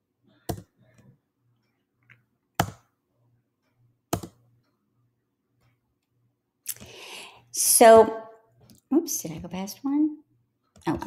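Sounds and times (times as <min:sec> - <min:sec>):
computer mouse clicks: 0:00.5 - 0:00.7, 0:02.0 - 0:02.9, 0:04.1 - 0:04.4.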